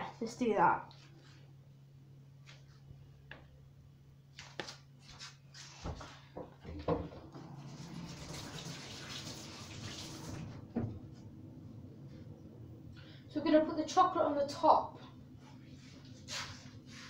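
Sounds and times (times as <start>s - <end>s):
kitchen tap running: 7.4s - 10.9s.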